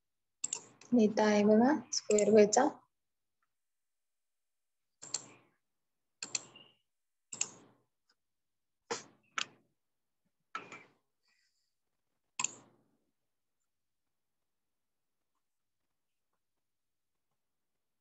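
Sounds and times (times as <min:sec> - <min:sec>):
computer mouse clicks: 0:00.4 - 0:00.9, 0:02.0 - 0:02.3, 0:05.0 - 0:05.4, 0:06.2 - 0:06.7, 0:07.3 - 0:07.7, 0:12.4 - 0:12.7.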